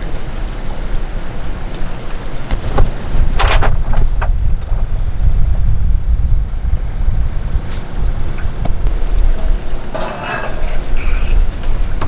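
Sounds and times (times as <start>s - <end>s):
wind buffeting microphone: 0.0s - 12.0s
cables rattling against rail: 7.7s - 12.0s.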